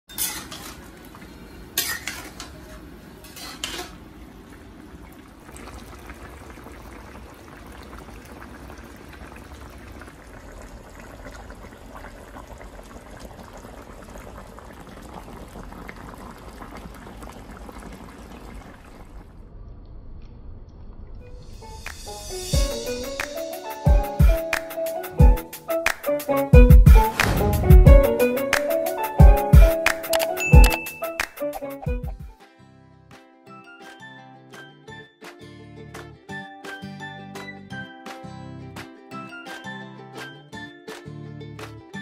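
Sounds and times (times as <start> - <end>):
stew simmering and bubbling: 0.1 - 20.2.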